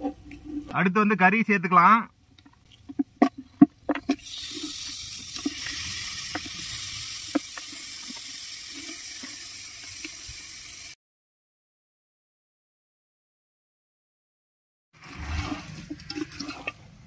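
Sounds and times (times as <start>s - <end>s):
oil sizzling: 3.0s - 11.0s.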